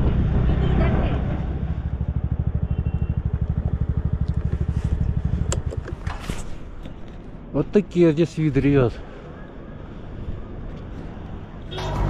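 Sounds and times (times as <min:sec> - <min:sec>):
motorcycle engine idling: 0:01.6 - 0:06.0.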